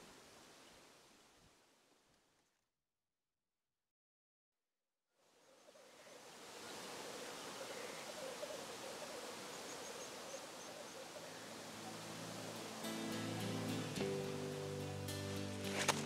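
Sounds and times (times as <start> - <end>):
steady outdoor hiss: 0.0 - 2.2, 5.2 - 16.0.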